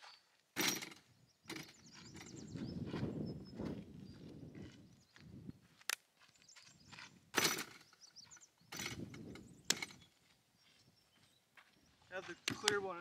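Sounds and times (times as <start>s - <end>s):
footsteps on dirt: 0.0s - 13.0s.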